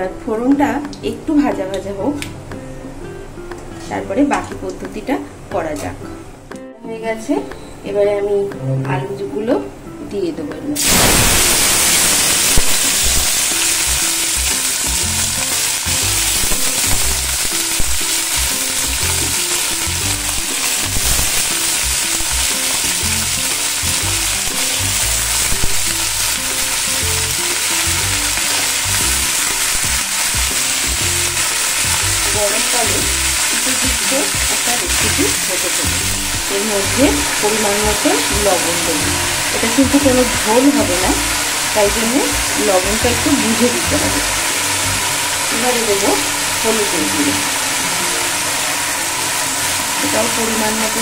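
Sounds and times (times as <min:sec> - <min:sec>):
potatoes sizzling in hot oil: 0:10.8 - 0:51.0.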